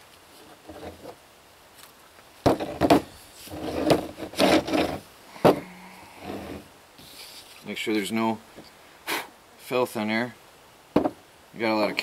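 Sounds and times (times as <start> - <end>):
plastic pipe rubbing and clunking: 2.4 - 5.6.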